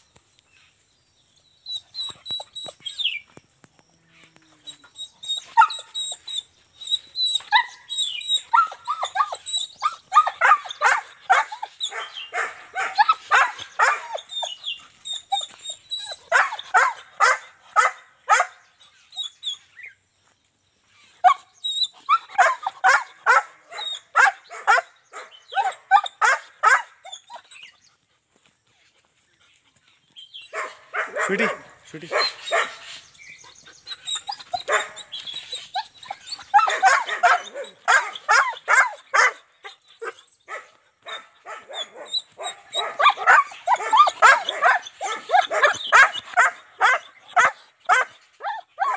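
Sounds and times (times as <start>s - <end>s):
young dog barking and yelping: 1.6s - 3.4s, 4.6s - 48.9s.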